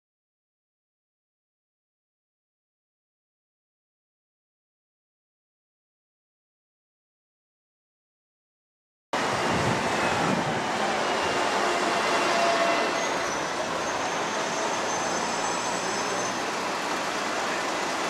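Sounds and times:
bus diesel engines: 9.2s - 18.0s
road hiss: 9.2s - 18.0s.

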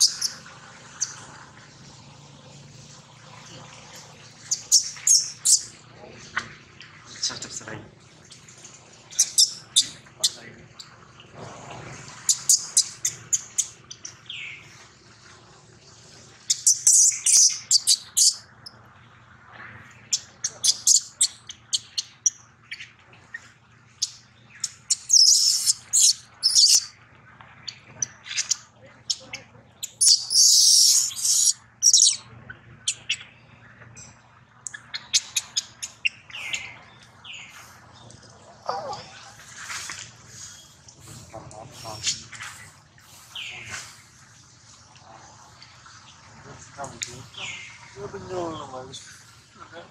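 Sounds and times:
baby monkey screaming: 0.0s - 0.4s, 9.2s - 10.4s, 20.5s - 21.8s, 24.6s - 26.9s, 28.3s - 32.2s.

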